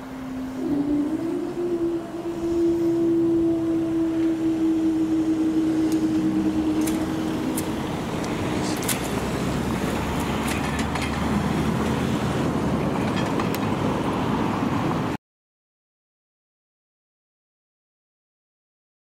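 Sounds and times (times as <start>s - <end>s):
barrier mechanism humming: 0.0s - 12.6s
cars pulling away: 0.0s - 15.2s.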